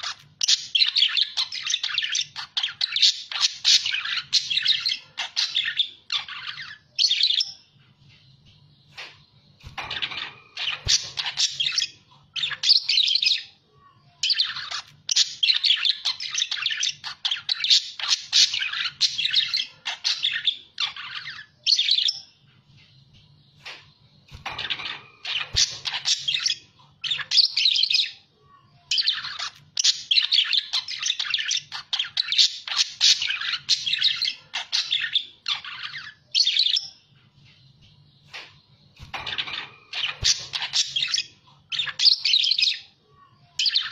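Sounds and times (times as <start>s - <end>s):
budgerigars chattering: 39.0s - 42.7s.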